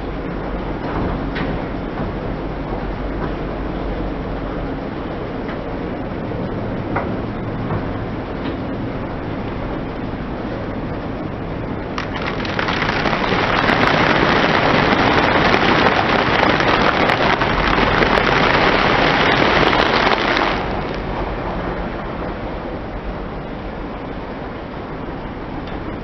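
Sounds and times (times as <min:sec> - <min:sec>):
tyre crushing noodles in plastic bag: 0:12.0 - 0:20.9.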